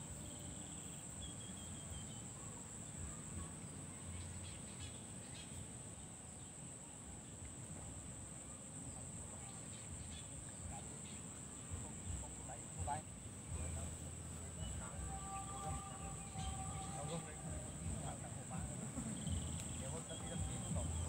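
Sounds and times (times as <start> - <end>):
faint bird chirps: 0.0 - 7.9, 8.5 - 21.0
low outdoor rumble: 0.0 - 21.0
high-pitched insect drone: 9.3 - 21.0.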